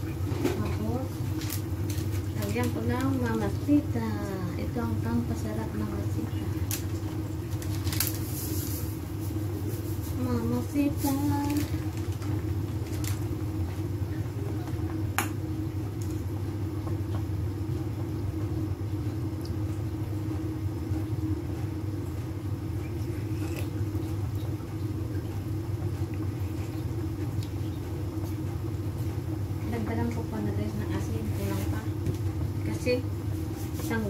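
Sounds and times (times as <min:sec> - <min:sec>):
soup boiling: 0:06.6 - 0:29.6.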